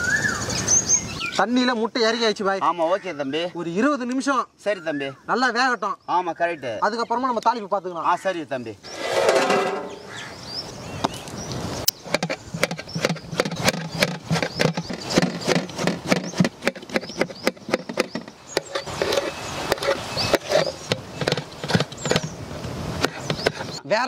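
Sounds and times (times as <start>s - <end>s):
metal pot lid clinking: 9.0s - 10.1s
knife chopping on metal plate: 9.0s - 10.2s, 12.1s - 22.3s.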